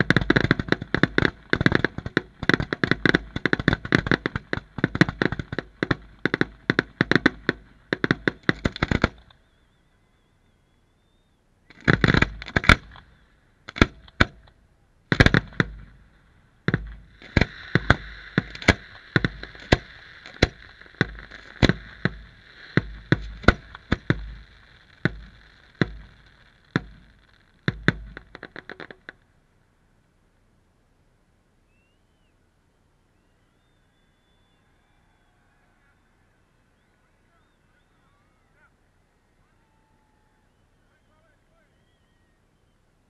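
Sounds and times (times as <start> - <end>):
firework shells bursting: 0.0 - 9.6, 11.7 - 29.3
small firework pops: 0.0 - 9.6, 11.7 - 16.0, 16.7 - 29.3
crackling hiss: 0.0 - 43.0.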